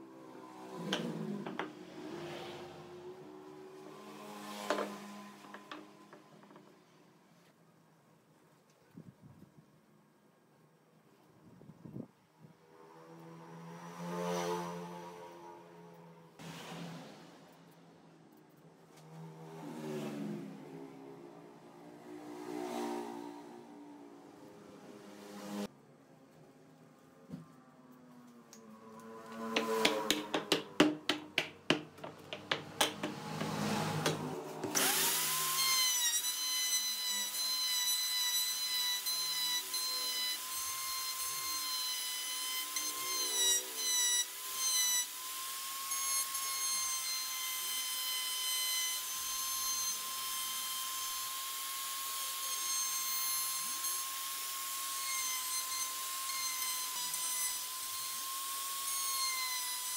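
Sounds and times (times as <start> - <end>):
wood router whining: 28.6 - 59.9
sharp knocks: 29.5 - 34.3.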